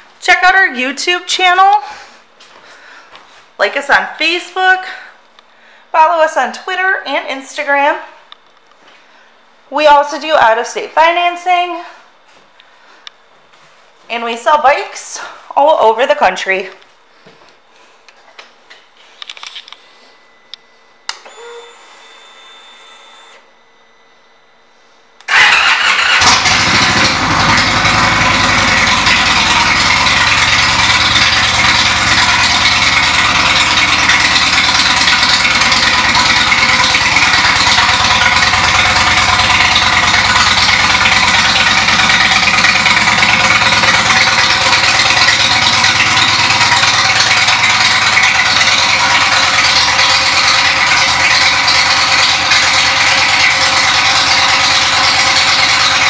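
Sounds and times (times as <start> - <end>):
motorcycle engine starting and idling: 25.2 - 56.0.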